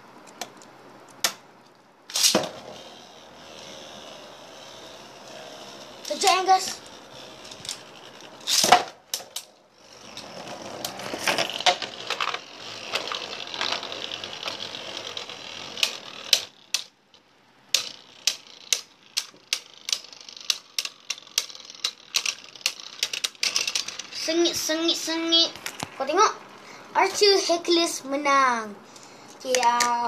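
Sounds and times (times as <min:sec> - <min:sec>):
spinning tops launch snap: 0:02.1 - 0:03.0, 0:04.9 - 0:09.5
spinning tops clashing: 0:02.1 - 0:09.5
spinning tops whirring: 0:02.1 - 0:26.1.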